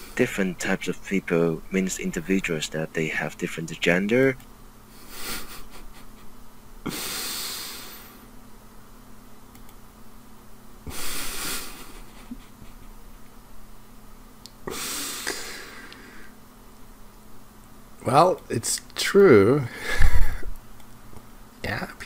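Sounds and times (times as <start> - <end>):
faint steady hum: 0.0 - 22.0
man huffing laughter through nose: 5.0 - 7.4, 10.9 - 13.2, 19.8 - 20.5.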